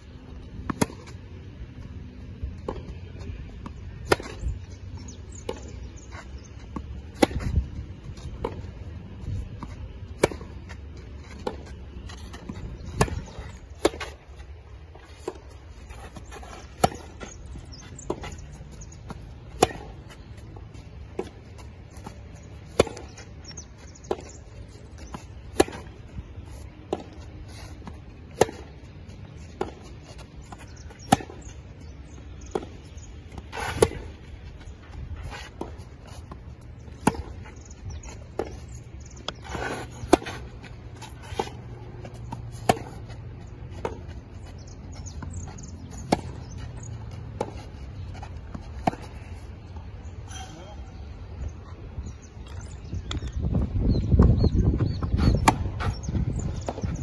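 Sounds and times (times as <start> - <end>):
tennis racket hitting ball: 16.0 - 17.2, 18.0 - 20.2, 21.1 - 23.2, 25.0 - 26.0, 26.8 - 28.8, 29.4 - 31.4, 32.4 - 34.2, 35.4 - 37.4, 39.3 - 44.1, 55.1 - 56.0.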